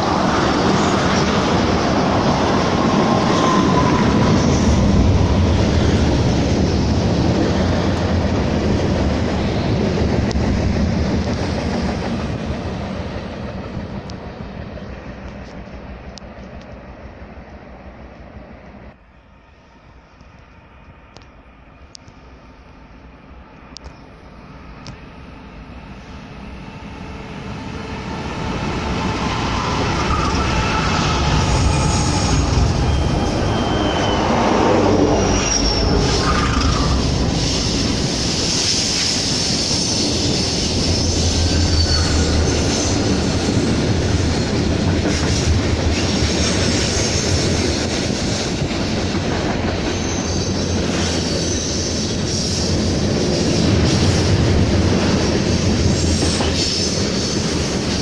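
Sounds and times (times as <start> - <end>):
train wheel squeals: 0.0 - 5.4, 22.2 - 58.0
diesel locomotive drone: 0.0 - 58.0
rumble of train cars: 0.0 - 58.0.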